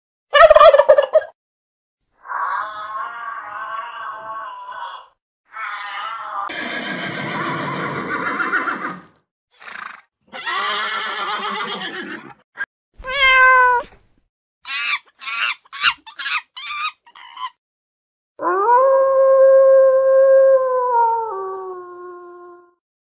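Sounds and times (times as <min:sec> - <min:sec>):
horses whinnying: 0:06.4 - 0:12.4
cat meowing: 0:13.0 - 0:13.9.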